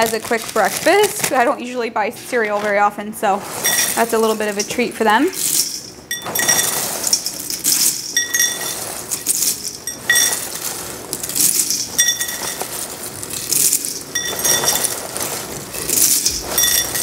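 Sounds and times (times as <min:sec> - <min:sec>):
dry cereal pouring: 0:00.0 - 0:01.5, 0:02.3 - 0:17.0
metal clinks: 0:05.4 - 0:10.6, 0:11.5 - 0:12.8, 0:13.8 - 0:15.0, 0:15.9 - 0:17.0.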